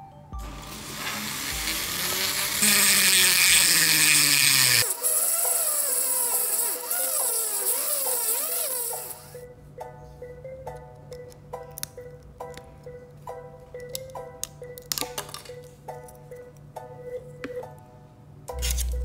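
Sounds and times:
rotary tool cutting plastic: 0.7s - 9.4s.

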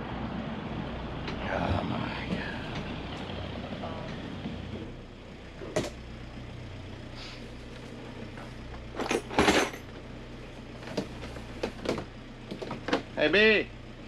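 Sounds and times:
boat engine idling: 0.0s - 14.0s
plastic toolbox clattering down: 9.0s - 9.9s.

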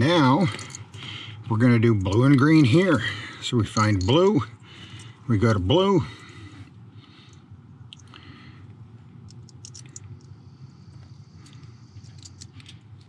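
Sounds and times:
faint low hum: 0.0s - 13.0s
wire connectors clicking: 9.2s - 10.3s.

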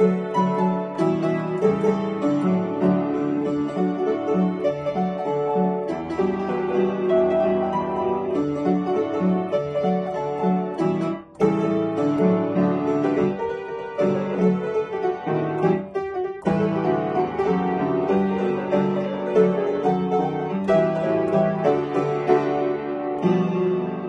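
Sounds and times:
upright piano playing: 0.0s - 24.0s.

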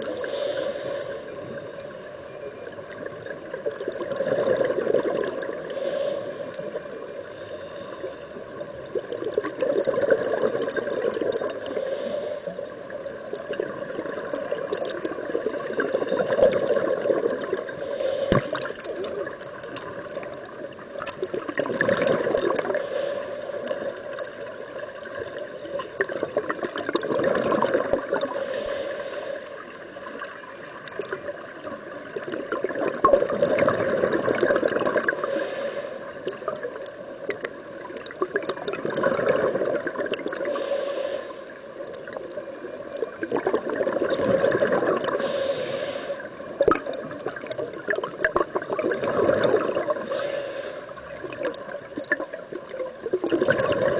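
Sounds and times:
regulator inhale hiss: 0.0s - 1.4s, 5.6s - 6.5s, 11.6s - 12.7s, 17.8s - 18.7s, 22.7s - 23.7s, 28.3s - 30.2s, 35.1s - 36.4s, 40.4s - 41.8s, 45.2s - 46.4s, 50.0s - 50.9s
exhaled bubbles gurgling: 2.3s - 7.2s, 8.4s - 12.0s, 12.7s - 23.0s, 23.6s - 28.6s, 29.6s - 40.8s, 41.8s - 53.9s.

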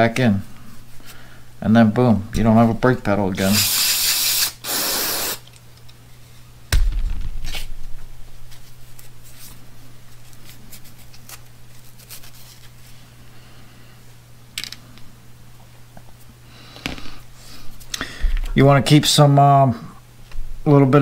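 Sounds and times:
steady low hum: 0.0s - 3.9s, 4.5s - 21.0s
aerosol cleaner hissing: 3.4s - 5.5s
sharp knock: 6.7s - 7.7s.

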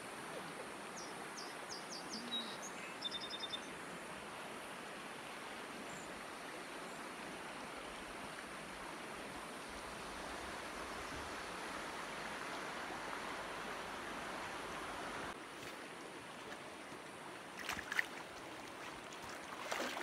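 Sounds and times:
bird chirping: 1.0s - 3.7s
river running over stones: 3.7s - 20.0s.

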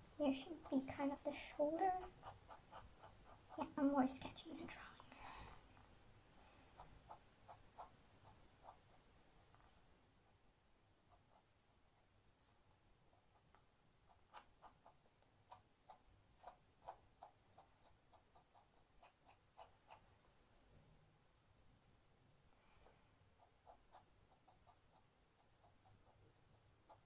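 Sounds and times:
pen nib scratching paper: 0.5s - 3.9s, 6.7s - 9.8s, 11.0s - 20.2s, 23.3s - 27.0s.

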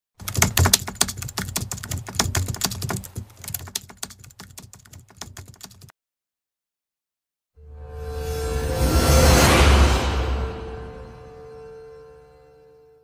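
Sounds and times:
keyboard typing clicks: 0.2s - 5.9s.

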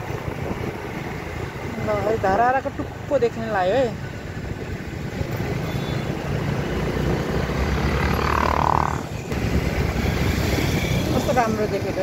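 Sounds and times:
wind rumbling on microphone: 0.0s - 5.7s
road traffic noise: 0.0s - 12.0s.

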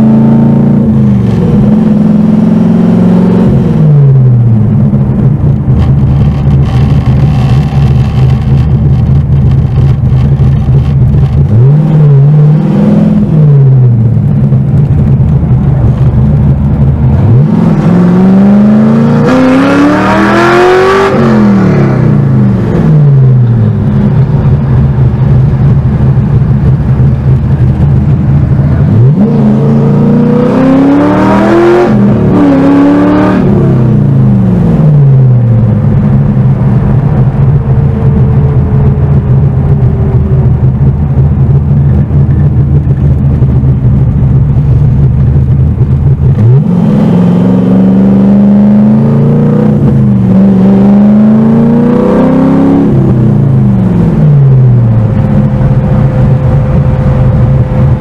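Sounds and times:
car engine revving inside cabin: 0.0s - 58.0s.

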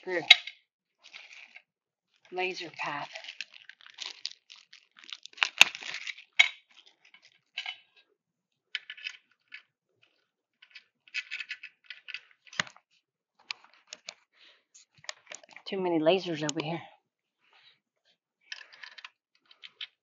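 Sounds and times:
plastic bag crinkling: 1.0s - 1.6s, 2.2s - 7.4s.

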